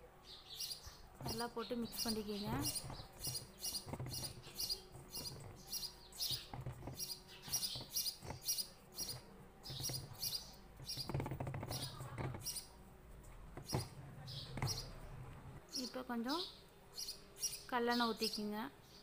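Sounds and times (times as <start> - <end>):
faint low hum: 0.0 - 19.0
small bird chirping: 0.2 - 12.8, 13.6 - 19.0
soft knocks: 1.2 - 15.6.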